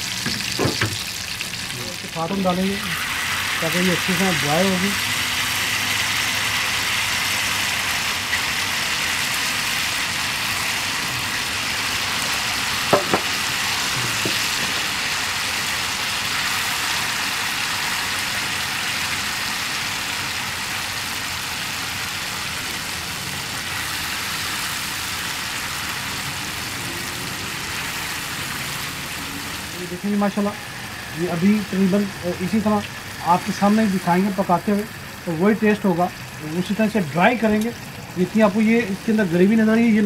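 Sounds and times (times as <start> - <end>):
food sizzling in hot oil: 0.0 - 40.0
sharp knocks: 12.9 - 13.5.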